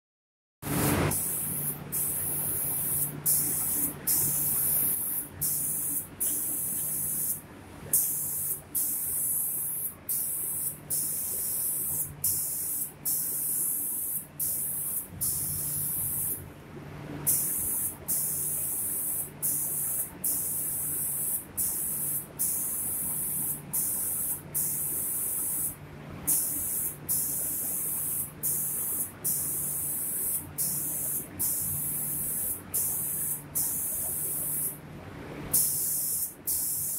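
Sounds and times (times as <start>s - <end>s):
spray gun hissing: 0.7s - 16.4s, 17.3s - 34.8s, 35.5s - 36.9s
low machine hum: 14.4s - 18.1s, 34.4s - 35.6s.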